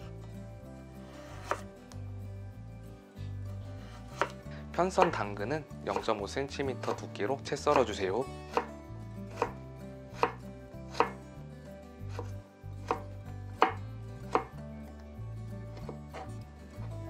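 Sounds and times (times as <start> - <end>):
knife chopping on cutting board: 1.2 - 1.7, 3.9 - 5.3, 5.9 - 6.2, 6.8 - 7.0, 7.7 - 9.6, 10.2 - 11.2, 12.1 - 14.6, 15.8 - 16.9.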